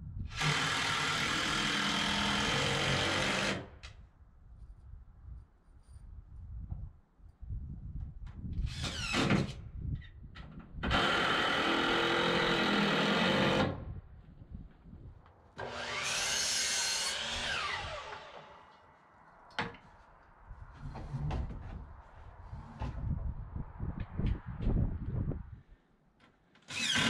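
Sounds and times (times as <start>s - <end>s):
power saw cutting wood: 0.3s - 3.6s, 10.9s - 13.8s, 15.6s - 18.8s, 26.7s - 27.0s.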